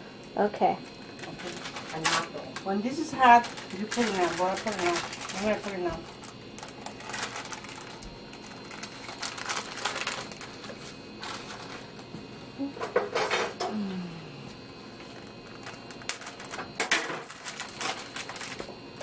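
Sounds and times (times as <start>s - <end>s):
seeds crackling in hot oil: 0.9s - 12.0s, 15.0s - 19.0s.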